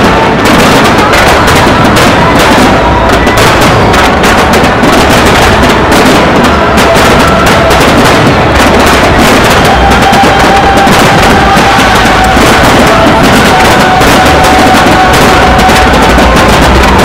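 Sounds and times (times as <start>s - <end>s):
firework shells bursting: 0.0s - 17.0s
music playing: 0.0s - 17.0s.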